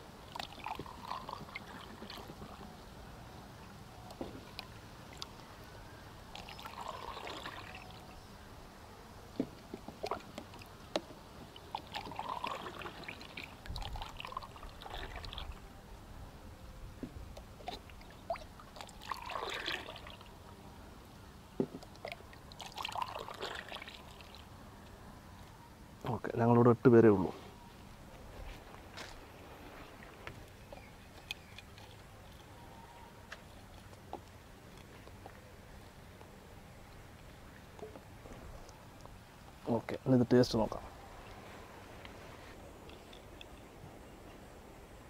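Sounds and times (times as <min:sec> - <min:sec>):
juice pouring into plastic cups: 0:00.2 - 0:02.7, 0:06.3 - 0:08.2, 0:11.4 - 0:15.6, 0:17.7 - 0:20.4, 0:21.9 - 0:24.5
juice splashing: 0:00.2 - 0:02.7, 0:06.3 - 0:08.2, 0:11.4 - 0:15.6, 0:17.4 - 0:20.4, 0:21.8 - 0:24.5.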